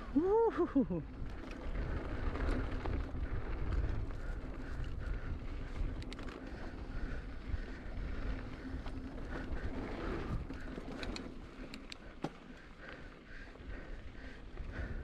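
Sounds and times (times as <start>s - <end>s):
bike tyres rumbling on dirt: 0.0s - 15.0s
bike clicks and rattles: 0.8s - 15.0s
wind buffeting microphone: 1.1s - 11.6s.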